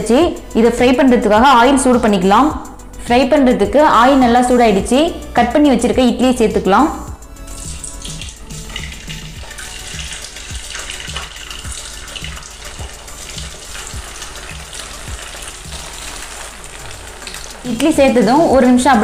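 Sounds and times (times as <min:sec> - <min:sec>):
food sizzling in hot oil: 0:07.2 - 0:19.0.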